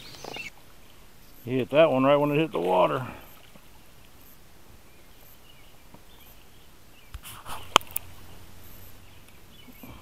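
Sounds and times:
water splashing: 1.7s - 4.3s.

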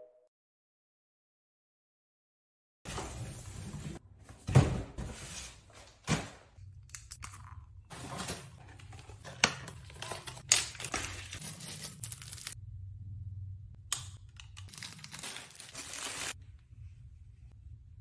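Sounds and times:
packaging crinkling and tearing: 9.2s - 12.6s, 14.6s - 16.4s.

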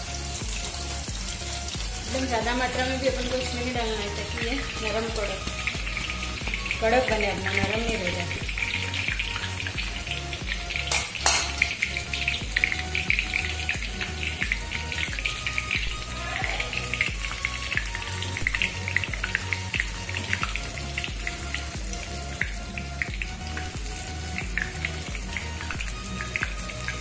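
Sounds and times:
background music with beat: 0.0s - 27.0s
food deep-frying in oil: 0.0s - 27.0s.

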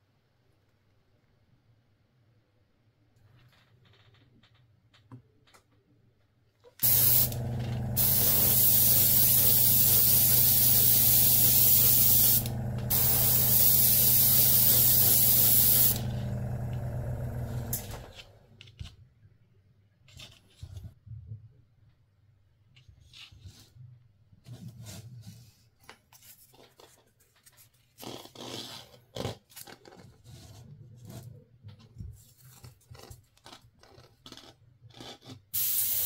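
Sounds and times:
paint sprayer hissing: 6.8s - 18.2s, 35.6s - 36.0s
small motor humming: 6.8s - 18.3s.

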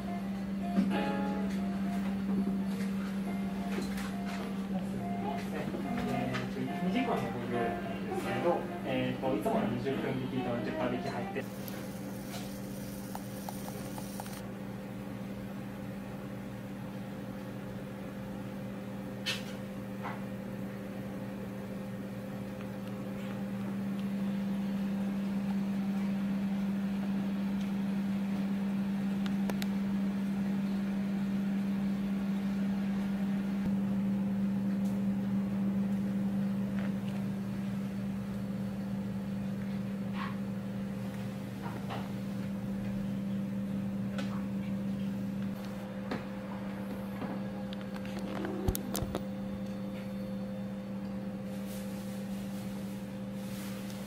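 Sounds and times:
machine hum: 0.0s - 19.1s.

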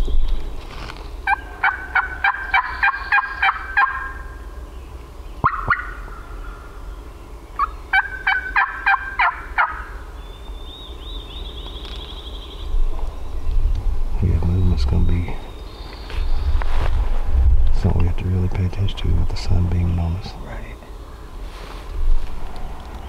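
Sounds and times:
turkey call yelps: 1.3s - 4.3s, 5.4s - 6.7s, 7.6s - 10.0s
songbird trilling: 1.3s - 16.7s.

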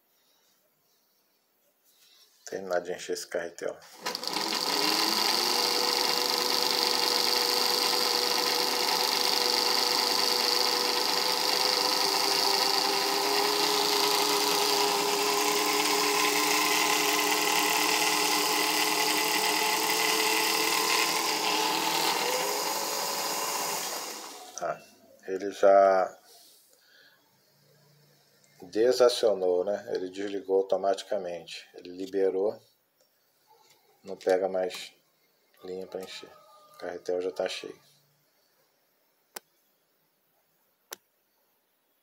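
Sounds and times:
sewing machine motor whining: 3.9s - 24.8s.

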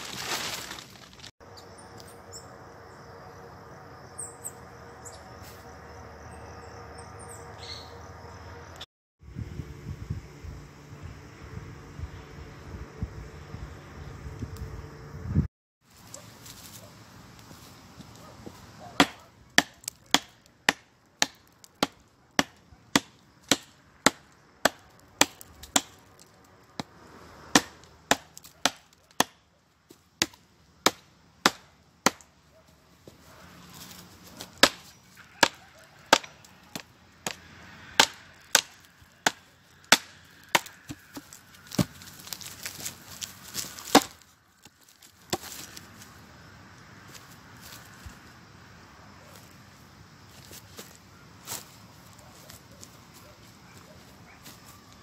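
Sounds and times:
blade chopping firewood: 19.0s - 26.2s, 26.8s - 29.4s, 30.2s - 32.3s, 34.3s - 45.8s.

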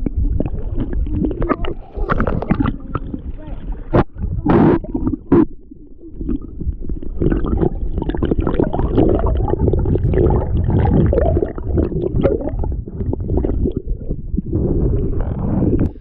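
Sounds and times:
water sloshing underwater: 0.0s - 16.0s.

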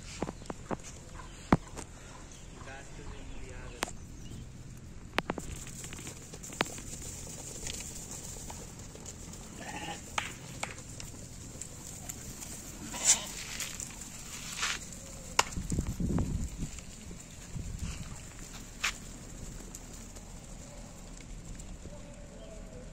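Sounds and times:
sheep bleating: 9.4s - 10.2s, 12.7s - 13.6s.

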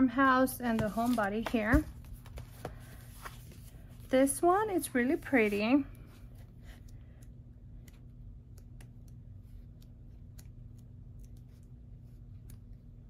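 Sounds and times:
low steady hum: 0.0s - 13.0s
pages clicking and turning: 0.7s - 4.1s.

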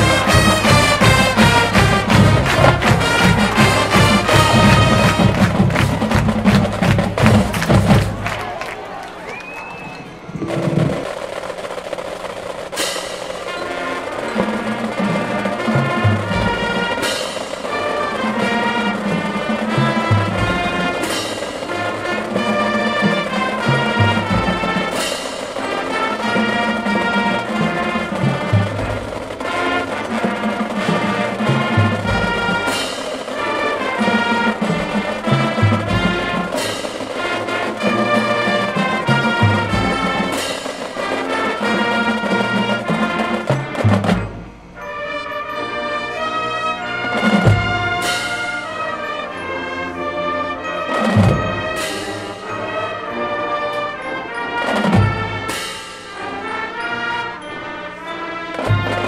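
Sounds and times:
marching band playing: 0.0s - 59.0s
cymbal crash: 55.4s - 56.6s.

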